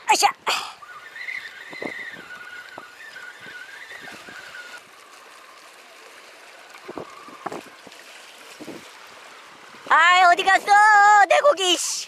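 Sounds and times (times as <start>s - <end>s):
fishing reel whirring: 0.0s - 12.0s.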